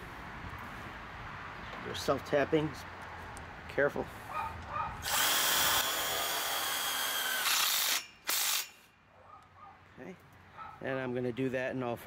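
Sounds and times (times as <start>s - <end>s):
cordless drill driving screw into metal: 5.0s - 8.9s.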